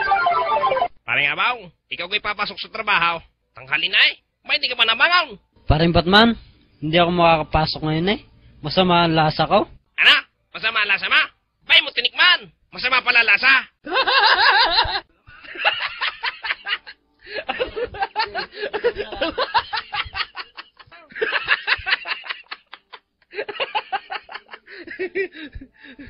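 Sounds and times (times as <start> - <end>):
laugh track: 13.8 - 26.0.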